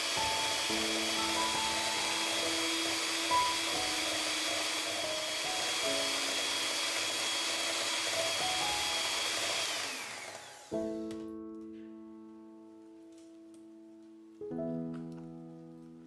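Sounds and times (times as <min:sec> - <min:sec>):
piano chord: 0:00.0 - 0:07.0, 0:10.5 - 0:16.0
electric hand mixer whining: 0:00.0 - 0:11.1.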